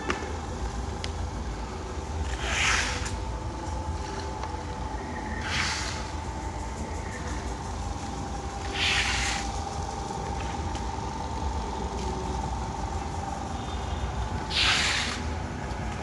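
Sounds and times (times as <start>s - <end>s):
floor scrubber motor hum: 0.0s - 16.0s
short bursts of hiss: 14.5s - 15.3s.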